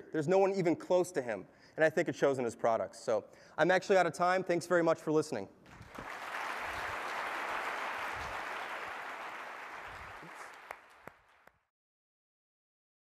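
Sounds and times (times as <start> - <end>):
audience applauding: 5.7 - 11.6.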